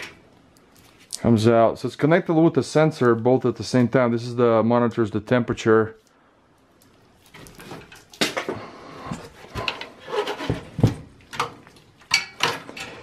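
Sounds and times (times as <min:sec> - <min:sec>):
clicks and knocks of computer parts: 0:09.6 - 0:13.0.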